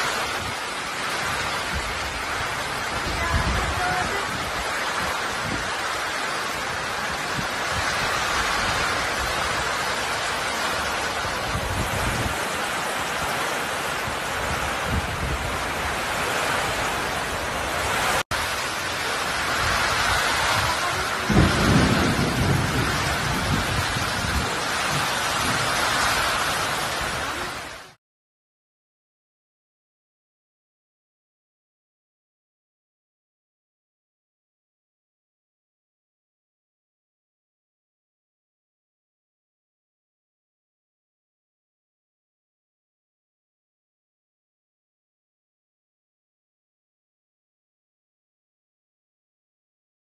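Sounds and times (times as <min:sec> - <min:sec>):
heavy rain pouring: 0:00.0 - 0:28.0
wind buffeting microphone: 0:00.1 - 0:27.8.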